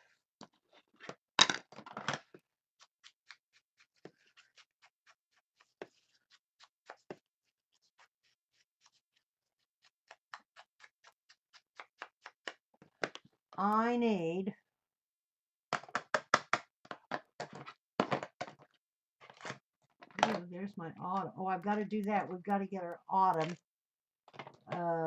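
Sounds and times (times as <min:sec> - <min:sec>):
scissors snipping paper: 0:02.8 - 0:12.6.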